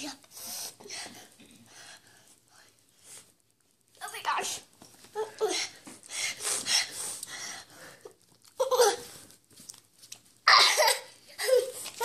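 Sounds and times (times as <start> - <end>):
girl breathing hard: 0.4 - 2.8, 5.2 - 8.2
girl laughing breathily: 8.6 - 9.2, 10.5 - 12.0
girl grunting: 10.5 - 11.7.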